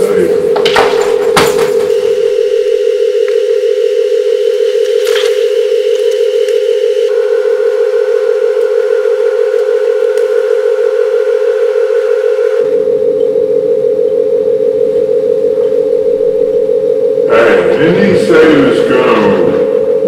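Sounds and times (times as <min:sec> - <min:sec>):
low hum: 0:00.0 - 0:20.0
steady electronic tone: 0:01.9 - 0:20.0.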